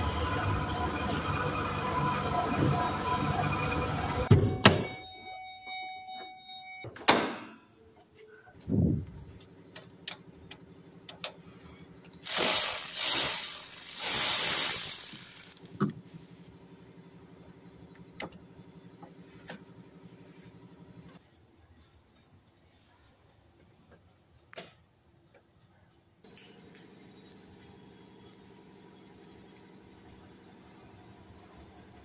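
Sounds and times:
power ratchet whirring: 0:12.2 - 0:15.8.

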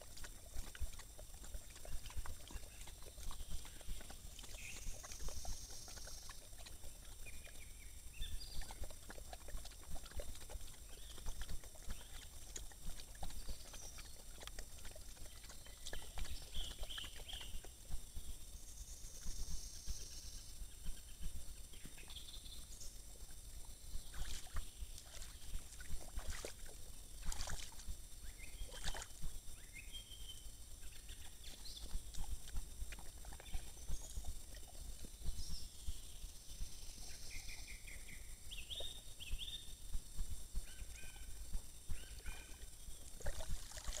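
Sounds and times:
water splashing: 0:00.0 - 0:07.6, 0:08.4 - 0:17.7, 0:24.1 - 0:29.4, 0:31.2 - 0:35.1, 0:42.0 - 0:44.0
wolf lapping water: 0:00.0 - 0:44.0.

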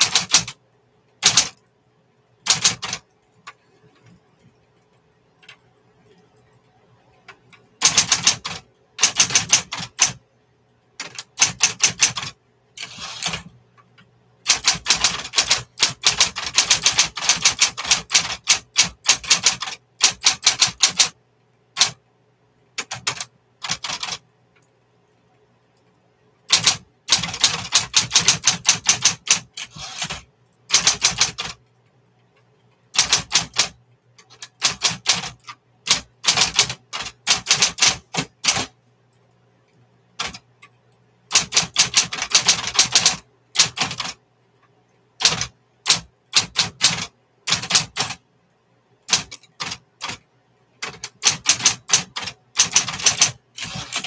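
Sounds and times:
electric typewriter key strikes: 0:00.0 - 0:00.6, 0:01.2 - 0:01.6, 0:02.5 - 0:03.0, 0:07.8 - 0:10.2, 0:11.0 - 0:13.5, 0:14.5 - 0:21.2, 0:21.8 - 0:22.0, 0:26.5 - 0:31.6, 0:33.0 - 0:38.7, 0:41.3 - 0:44.2, 0:45.2 - 0:48.2, 0:49.1 - 0:50.2, 0:50.8 - 0:54.0
low steady hum: 0:00.4 - 0:09.1, 0:10.1 - 0:11.4, 0:12.3 - 0:17.0, 0:21.2 - 0:28.6, 0:29.4 - 0:33.0, 0:38.0 - 0:41.3, 0:44.2 - 0:46.4, 0:48.2 - 0:50.9.

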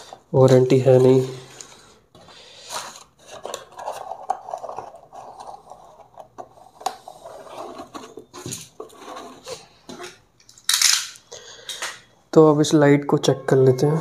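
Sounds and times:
cardboard box rustling and scraping: 0:07.0 - 0:09.7.

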